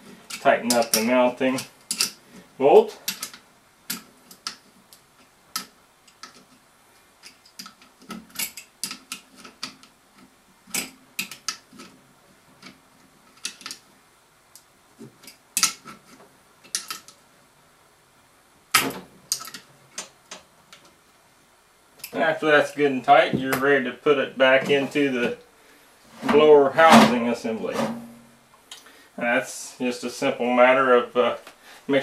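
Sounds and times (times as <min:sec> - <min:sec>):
hand tool clicking on metal bolt: 0:01.9 - 0:02.2.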